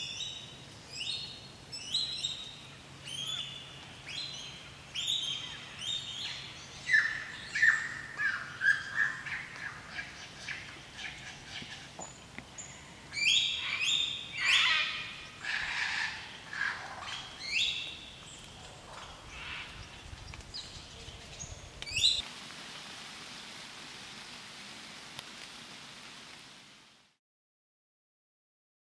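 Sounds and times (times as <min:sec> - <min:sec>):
lyrebird singing: 0:00.0 - 0:22.2
steady hiss: 0:00.0 - 0:27.2.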